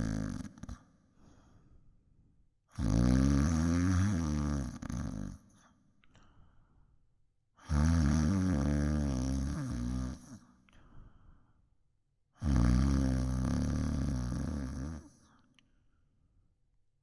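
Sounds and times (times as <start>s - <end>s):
loud snoring: 0.0s - 0.8s, 2.7s - 5.5s, 7.6s - 10.5s, 12.4s - 15.2s.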